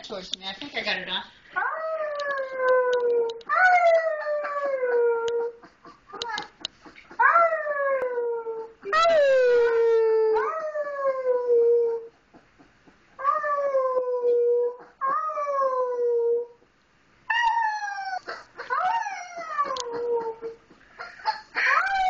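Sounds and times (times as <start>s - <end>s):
wolf pup howling: 7.2s - 12.1s, 17.3s - 20.6s, 21.6s - 22.0s.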